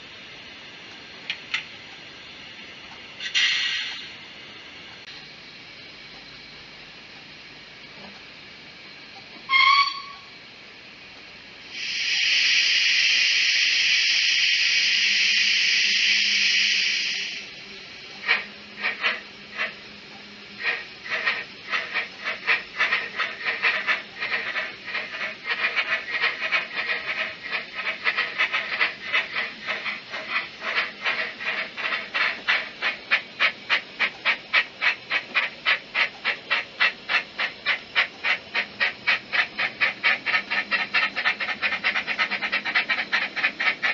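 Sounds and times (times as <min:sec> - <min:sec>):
steam hiss: 0:03.2 - 0:04.2, 0:11.6 - 0:43.9
model train whistle toot: 0:09.5 - 0:10.4, 0:11.8 - 0:17.4
steam exhaust chuffs: 0:18.2 - 0:43.9.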